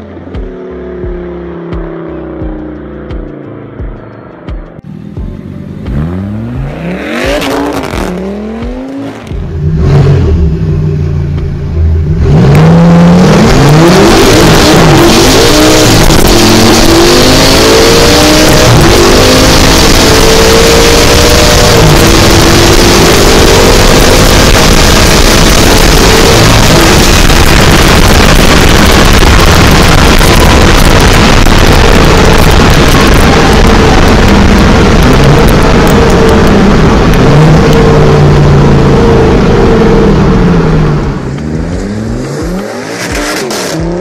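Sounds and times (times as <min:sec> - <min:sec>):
car engine revving: 0:00.0 - 0:44.0
wind and road roar: 0:00.0 - 0:44.0
car accelerating through gears: 0:05.9 - 0:10.6, 0:12.1 - 0:44.0.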